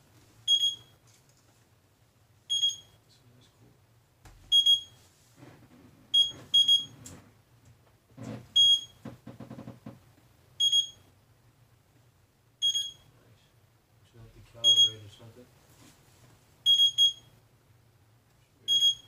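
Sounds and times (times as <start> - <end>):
short high beeps: 10.6 - 11.0, 12.6 - 13.1, 14.6 - 15.0, 16.7 - 17.3, 18.7 - 19.0.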